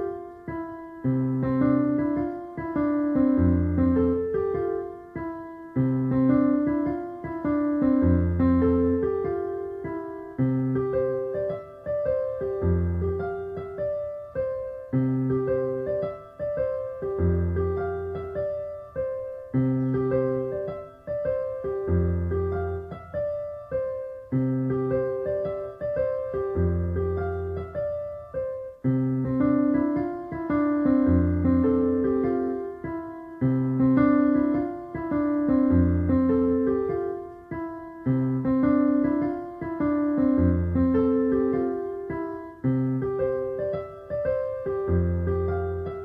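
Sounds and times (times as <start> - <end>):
gentle piano music: 0.0 - 46.0.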